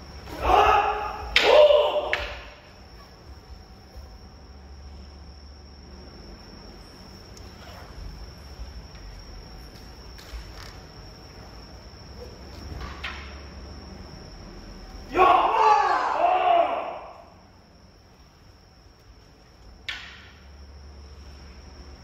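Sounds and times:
low hum: 2.3s - 15.1s.

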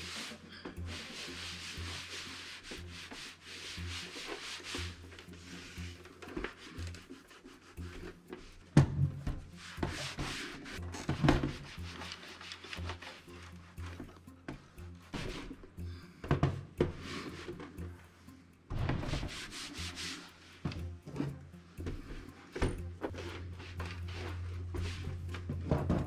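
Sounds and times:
cloth scrubbing computer case: 0.0s - 8.5s.

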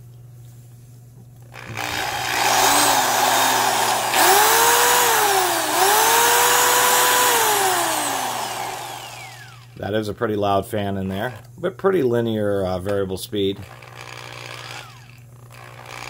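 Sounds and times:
electric drill running: 1.5s - 9.8s, 13.6s - 16.0s.

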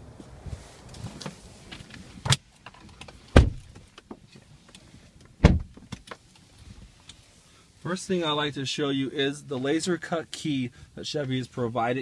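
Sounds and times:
outdoor background noise: 0.0s - 12.0s
car door thumps: 3.3s - 3.8s, 5.4s - 6.0s.

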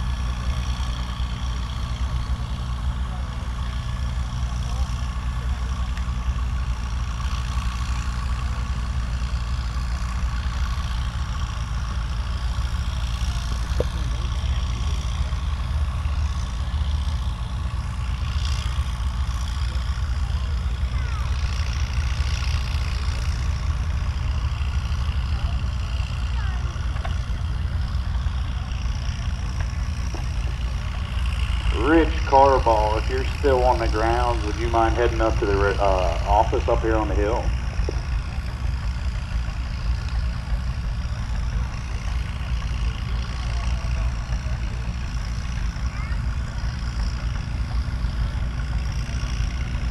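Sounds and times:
tractor engine running: 0.0s - 49.9s.

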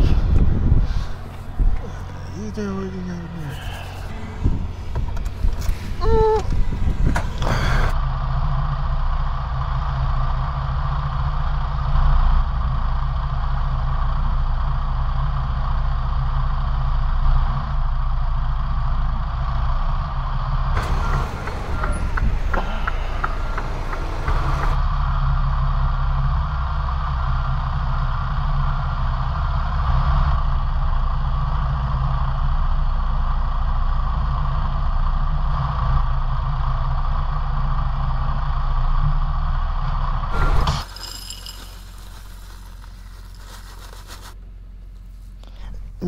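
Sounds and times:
steady low hum: 0.0s - 16.6s
diesel truck engine running: 0.0s - 46.0s.

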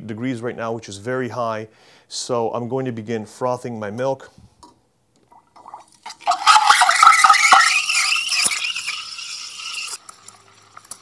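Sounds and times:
steam wand frothing milk: 6.1s - 11.0s.

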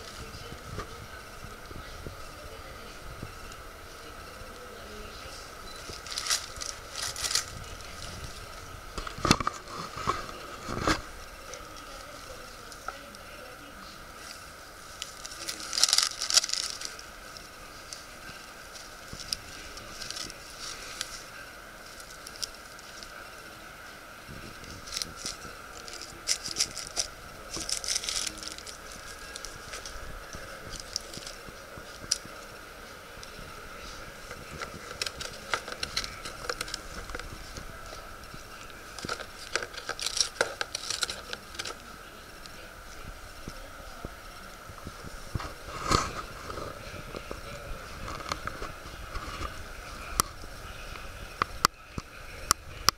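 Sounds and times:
tissue paper rustling: 4.9s - 13.0s, 14.2s - 23.2s, 24.4s - 41.8s.

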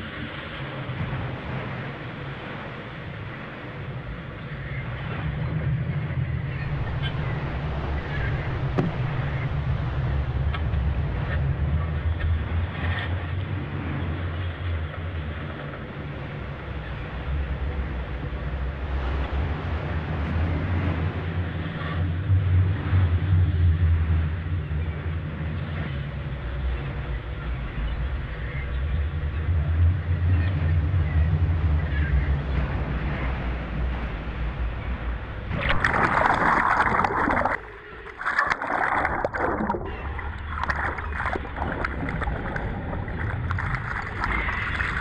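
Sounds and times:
sea water splashing: 0.0s - 16.5s, 35.2s - 45.0s
boat engine droning: 0.0s - 45.0s
wind buffeting microphone: 0.0s - 45.0s.

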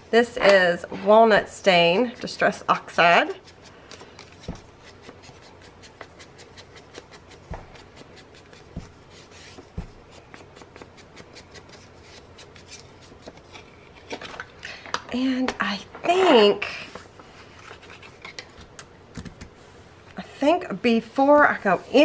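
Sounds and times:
foam pad rubbing on card: 3.3s - 13.0s.

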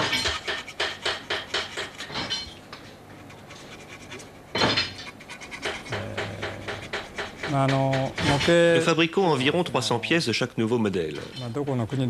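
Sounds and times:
metal clatter: 0.0s - 2.6s
hand tools clicking on metal parts: 4.6s - 8.8s.

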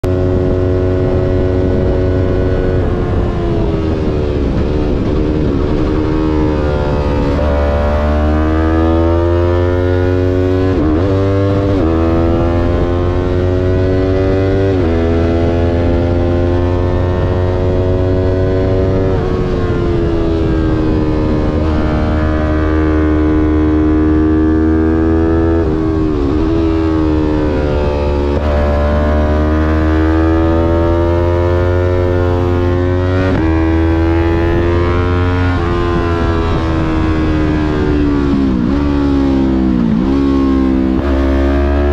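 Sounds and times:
steady low rumble: 0.0s - 8.1s
motorcycle engine on track: 0.0s - 41.9s.

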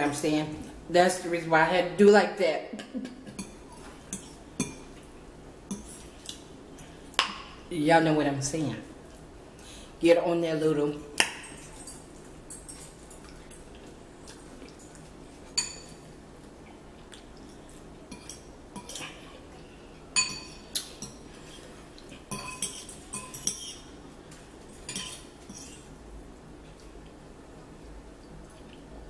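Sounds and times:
metal forks clinking against bowls: 11.2s - 13.6s, 15.6s - 16.0s, 20.2s - 21.2s, 22.3s - 23.9s, 24.8s - 25.8s.

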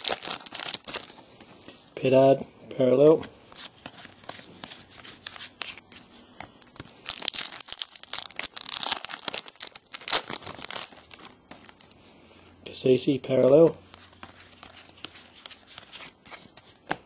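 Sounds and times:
wrapper tearing and crinkling: 0.0s - 1.2s, 7.0s - 11.8s.

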